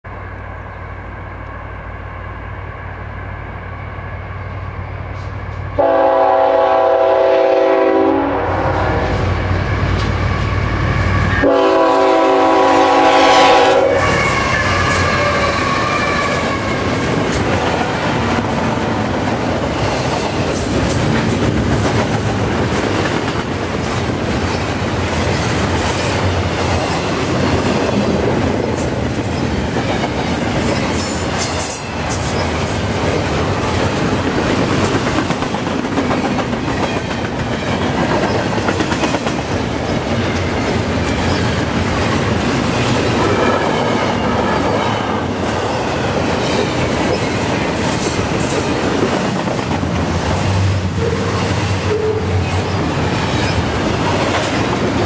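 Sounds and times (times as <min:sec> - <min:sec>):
diesel locomotive engine: 0:00.0 - 0:55.0
train horn blasts: 0:05.2 - 0:09.4, 0:11.2 - 0:17.0, 0:51.0 - 0:52.4.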